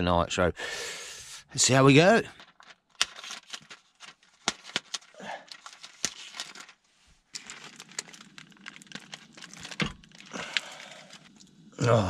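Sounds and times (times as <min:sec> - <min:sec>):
plastic film crinkling and tearing: 0:02.3 - 0:11.8.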